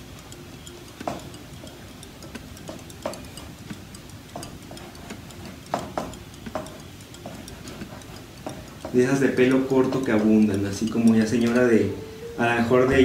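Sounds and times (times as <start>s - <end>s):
faint even ticking: 0.0s - 13.0s
pencil drawing on paper: 7.2s - 9.6s.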